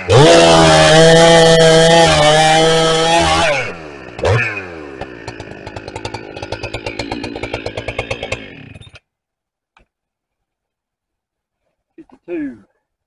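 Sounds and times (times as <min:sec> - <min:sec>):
chainsaw revving and idling: 0:00.0 - 0:09.0.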